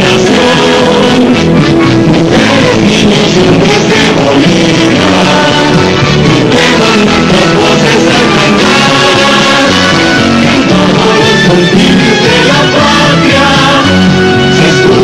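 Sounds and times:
rock band with guitar and vocals: 0.0s - 15.0s.

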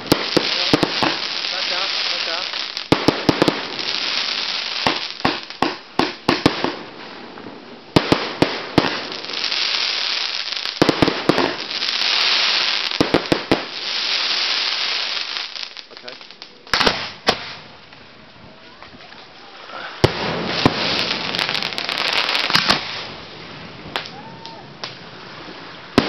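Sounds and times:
firework hiss: 0.0s - 17.8s, 19.4s - 26.0s
firework bangs: 0.0s - 18.0s, 19.8s - 26.0s.

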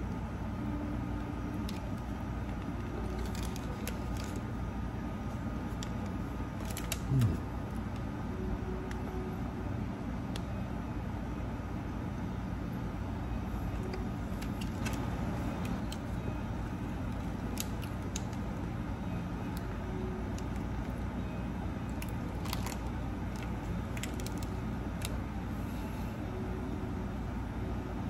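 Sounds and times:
low indoor background rumble: 0.0s - 28.0s
paper wrapper crackling: 1.6s - 4.5s, 5.7s - 7.3s, 17.0s - 18.7s, 21.9s - 25.2s.

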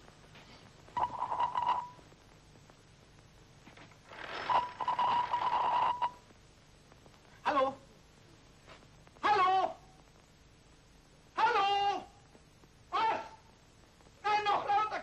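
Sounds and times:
telephone bells ringing: 4.2s - 6.2s.

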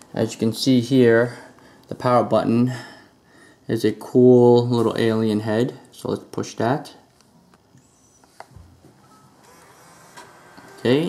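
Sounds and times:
faint thin whine of laptop: 7.2s - 11.0s.

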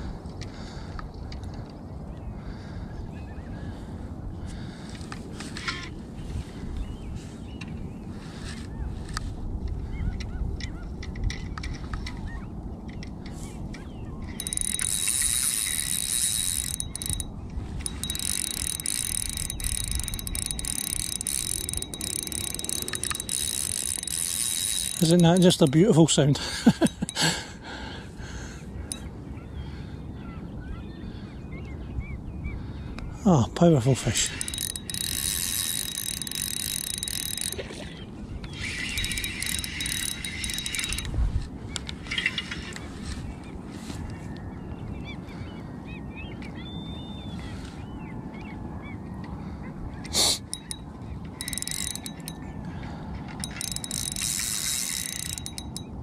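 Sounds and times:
fishing reel drag buzzing: 14.2s - 26.0s, 26.8s - 27.4s, 34.1s - 41.2s, 50.1s - 52.5s, 53.3s - 56.0s.

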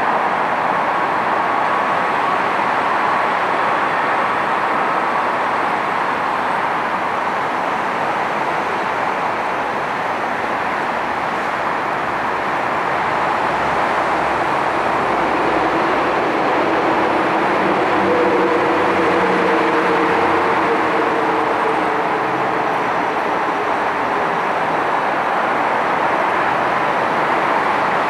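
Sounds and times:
jet engines roaring: 11.0s - 28.0s.

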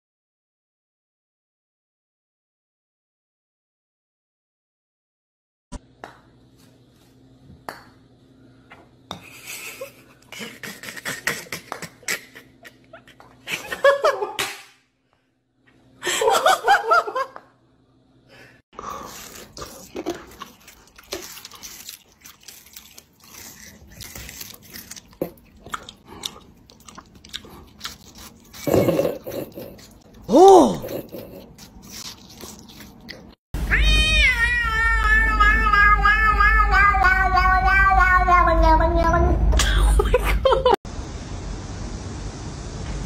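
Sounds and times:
person laughing: 9.2s - 14.4s, 16.0s - 17.4s, 28.7s - 31.5s, 39.6s - 40.8s
chewing clicks and smacks: 19.7s - 28.7s.

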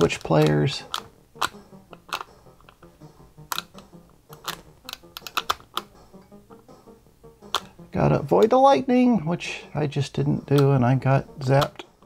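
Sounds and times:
faint video game music: 0.0s - 12.0s
joystick microswitch clicks: 0.1s - 6.6s, 7.5s - 7.8s.

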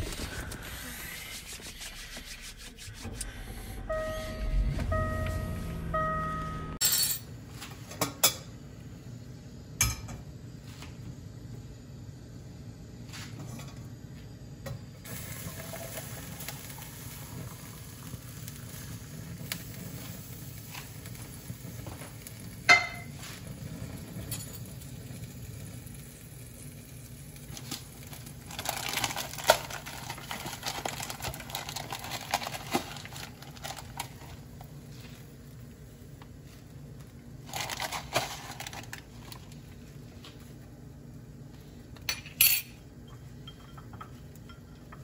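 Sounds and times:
hissing noise: 0.0s - 5.9s
gas burner hum: 2.9s - 45.0s.

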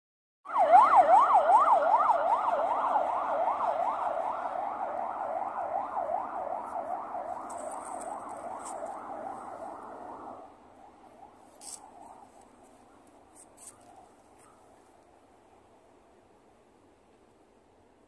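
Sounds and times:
siren yelping: 0.4s - 12.4s
street noise: 0.5s - 18.0s.

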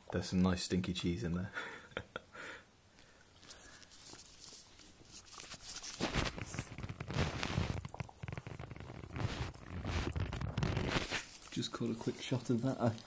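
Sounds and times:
dog chewing: 3.4s - 13.0s
scrabbling: 3.4s - 13.0s.

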